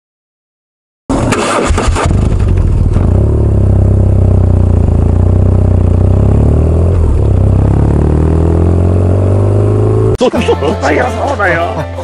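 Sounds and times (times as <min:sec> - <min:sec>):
vehicle engine running: 0:01.1 - 0:10.2.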